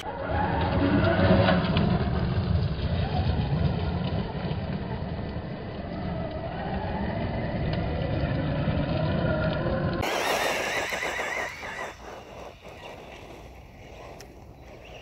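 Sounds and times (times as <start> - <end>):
tyres rumbling on gravel: 0.0 - 15.0
rc truck motor whining: 8.8 - 15.0.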